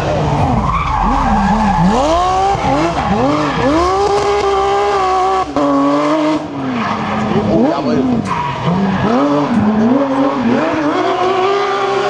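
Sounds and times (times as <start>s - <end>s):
car engine revving hard: 0.0s - 12.0s.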